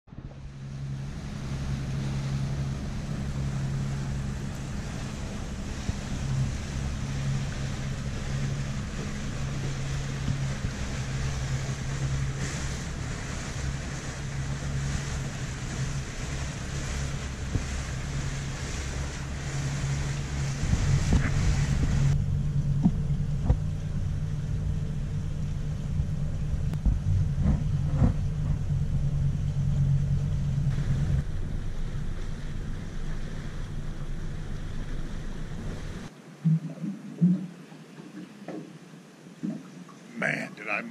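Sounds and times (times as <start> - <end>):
boat engine humming: 0.0 - 40.9
rush of wind and water: 0.1 - 40.9.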